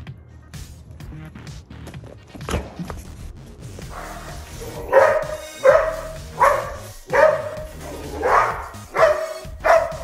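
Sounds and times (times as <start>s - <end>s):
background music: 0.0s - 10.0s
dog barking sharply: 3.9s - 10.0s.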